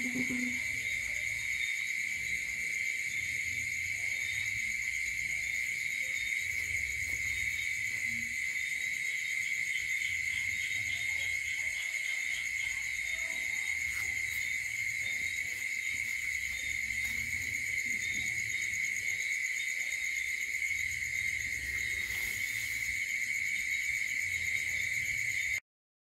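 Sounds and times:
night insects chorus: 0.0 - 25.6.

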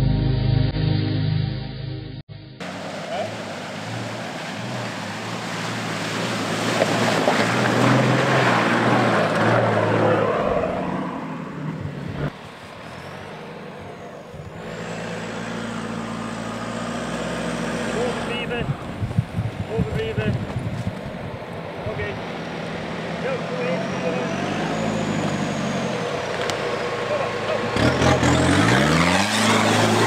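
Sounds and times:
rushing splash of water: 2.6 - 10.0
engine labouring under load: 2.6 - 30.0
off-road vehicle engine running: 2.6 - 30.0.

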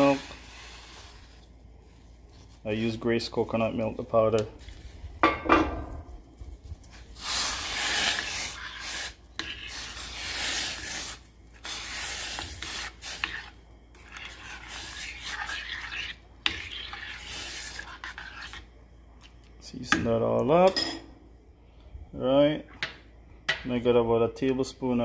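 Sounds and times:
metal spoon scraping saucepan: 7.3 - 18.7.

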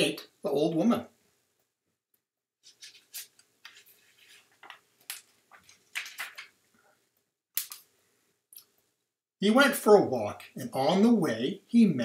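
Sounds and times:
paper page crackling and rustling: 2.7 - 6.6.

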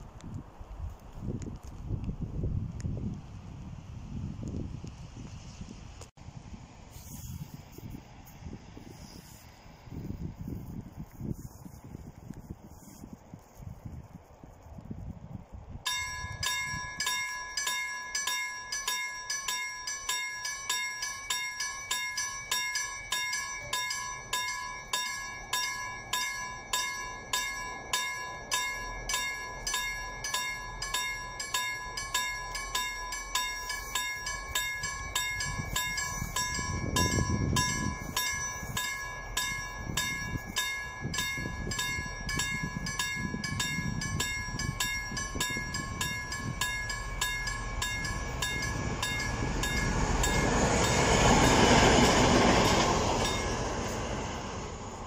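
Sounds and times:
level crossing warning bell: 15.9 - 55.0.

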